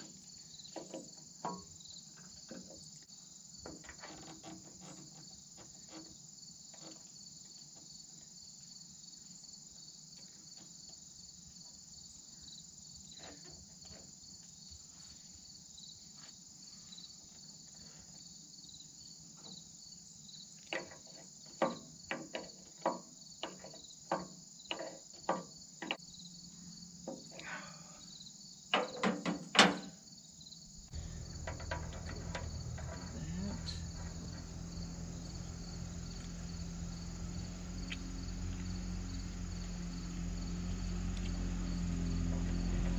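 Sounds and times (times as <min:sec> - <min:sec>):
crickets chirping: 0:00.0 - 0:42.9
low steady hum: 0:30.7 - 0:42.9.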